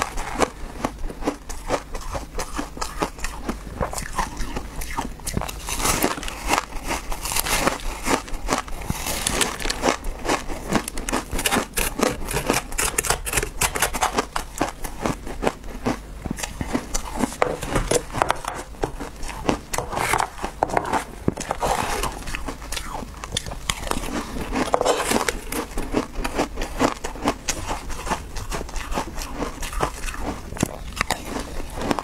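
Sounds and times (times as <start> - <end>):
crunching of frozen cake chewed: 0.0 - 32.0
metal spoon scraping: 11.3 - 14.4, 24.6 - 25.8.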